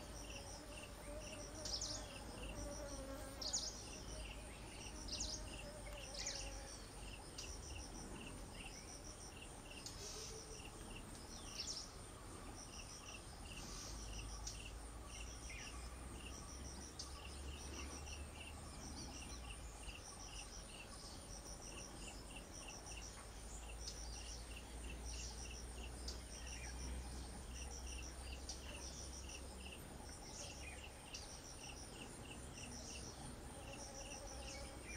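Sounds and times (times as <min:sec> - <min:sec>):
high trilling insect buzz: 0:00.0 - 0:11.8, 0:31.1 - 0:34.9
crickets chirping in pulses: 0:00.0 - 0:34.9.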